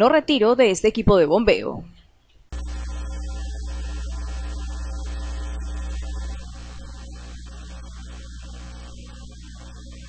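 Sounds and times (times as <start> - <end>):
electrical mains hum: 2.4 - 10.0
thin high whine: 2.6 - 10.0.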